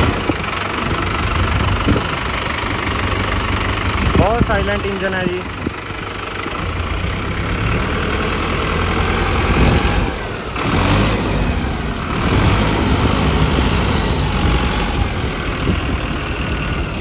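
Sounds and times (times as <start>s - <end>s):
tractor diesel engine idling: 0.0s - 17.0s.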